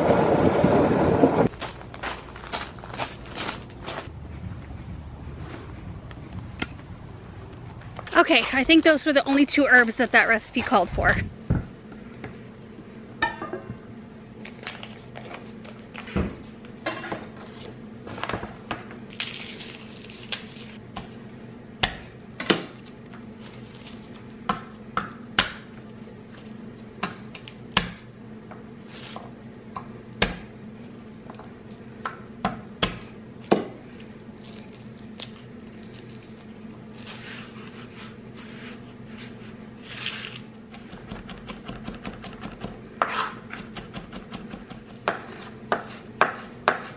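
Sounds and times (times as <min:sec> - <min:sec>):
steady low hum: 0:00.0 - 0:46.9
papery skins rustling: 0:33.8 - 0:40.5.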